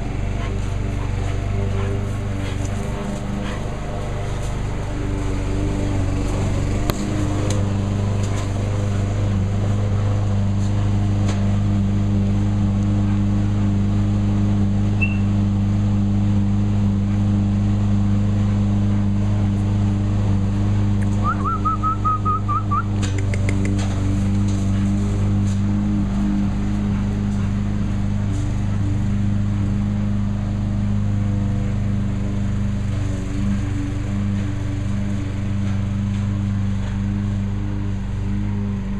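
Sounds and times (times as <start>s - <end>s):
low machine hum: 0.0s - 38.9s
wavering high whistle: 15.0s - 15.3s, 21.2s - 22.9s.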